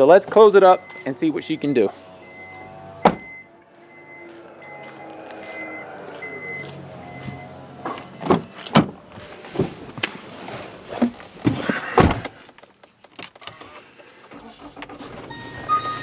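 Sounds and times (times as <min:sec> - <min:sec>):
car door closing thump: 0:03.0 - 0:03.3.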